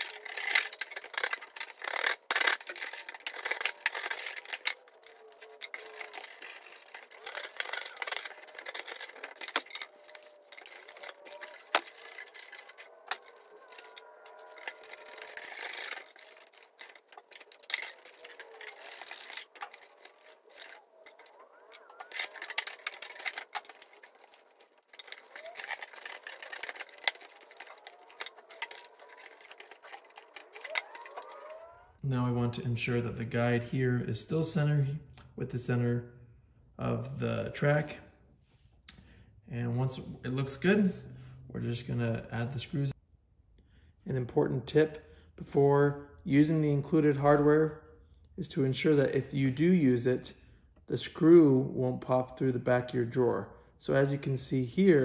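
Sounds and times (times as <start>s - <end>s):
hand tool cutting and scraping wood: 0.0s - 31.8s
scattered clicks: 0.0s - 31.8s.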